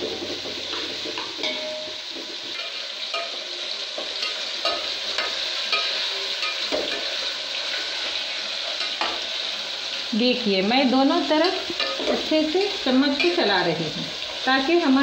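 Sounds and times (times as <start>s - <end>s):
onions sizzling in hot oil: 0.0s - 15.0s
metal spatula scraping pan: 0.2s - 7.4s.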